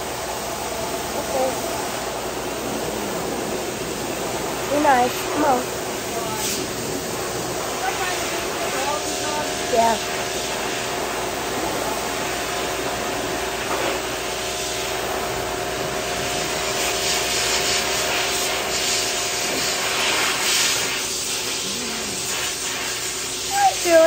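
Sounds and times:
electric clippers buzzing: 8.8s - 14.0s, 15.0s - 22.9s.

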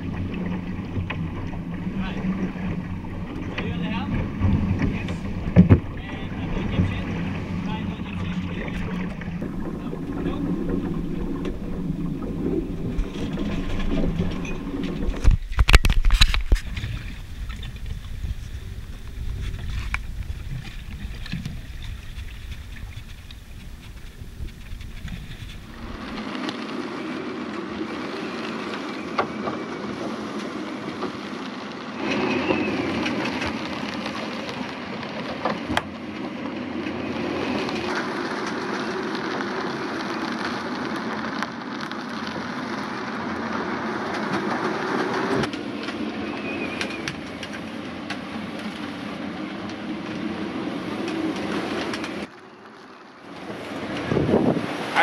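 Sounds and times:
wind buffeting microphone: 0.0s - 26.4s, 53.4s - 55.0s
strong wind: 0.0s - 34.2s, 34.8s - 55.0s
rough sea: 0.0s - 55.0s.

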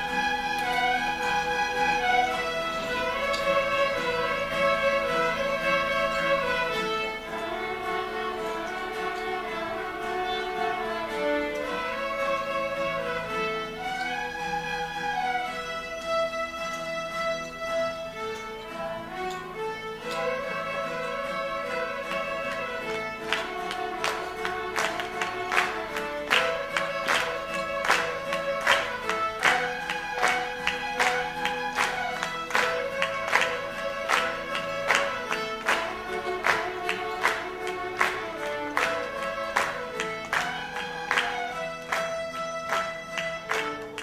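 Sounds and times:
fiddles playing a tune: 0.0s - 44.0s
sharp rhythmic strikes: 15.2s - 44.0s.

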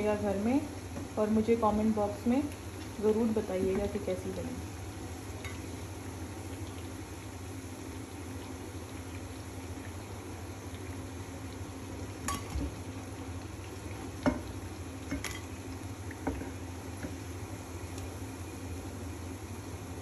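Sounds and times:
fritters sizzling in oil: 0.0s - 20.0s.

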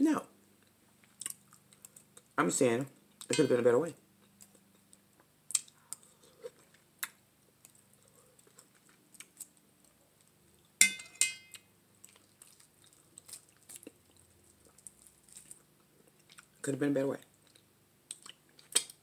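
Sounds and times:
wet mouth clicks and chewing: 0.6s - 2.3s, 4.2s - 9.6s, 11.5s - 16.6s, 17.4s - 19.0s
fork clinking against metal bowl: 10.8s - 11.5s.

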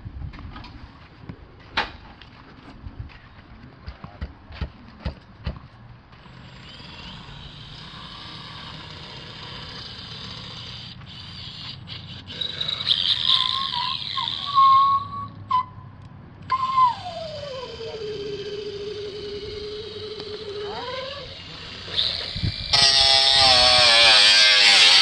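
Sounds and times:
power driver whining: 16.4s - 25.0s
tone sliding down in pitch: 16.5s - 21.3s.

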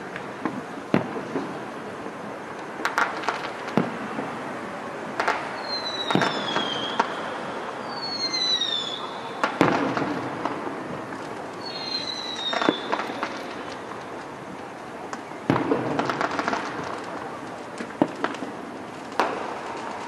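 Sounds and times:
distant fireworks booming: 0.0s - 20.0s
falling firework whistles: 5.2s - 14.2s.

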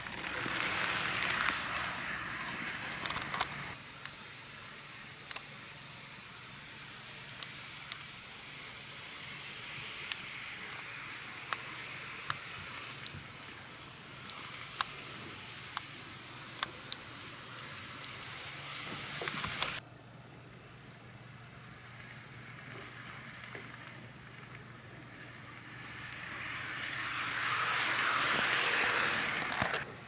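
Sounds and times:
wheels clicking over track joints: 0.0s - 3.8s, 9.8s - 19.8s, 22.0s - 30.0s
model train wheels hissing: 0.0s - 19.8s, 21.7s - 30.0s.

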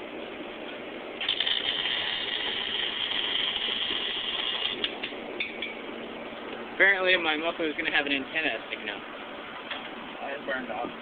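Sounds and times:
arc welder buzzing: 1.2s - 5.3s.

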